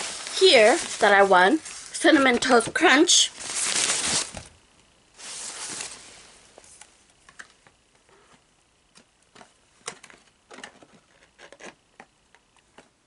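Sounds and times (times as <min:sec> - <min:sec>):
paper rustling: 0:00.0 - 0:04.5, 0:05.2 - 0:06.9.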